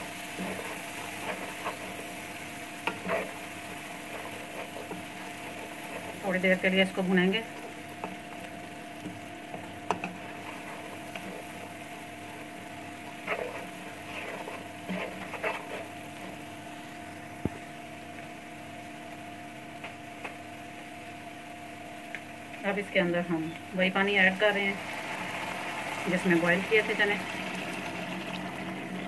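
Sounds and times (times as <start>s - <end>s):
chickpeas sizzling in oil: 0.0s - 29.0s
faint steady hum: 0.0s - 29.0s
stirring scraping clatters: 0.3s - 2.2s, 2.8s - 6.4s, 13.1s - 15.9s.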